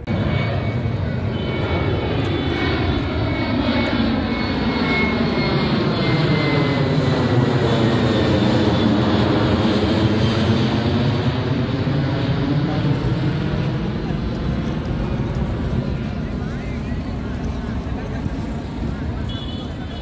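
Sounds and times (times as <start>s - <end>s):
jet airliner roaring overhead: 0.0s - 20.0s.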